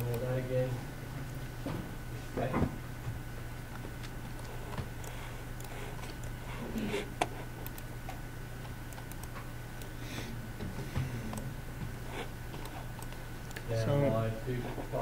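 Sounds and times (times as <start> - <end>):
steady low hum: 0.0 - 15.0
computer mouse clicks: 4.3 - 6.4, 7.2 - 7.9, 8.6 - 9.9, 12.6 - 13.7.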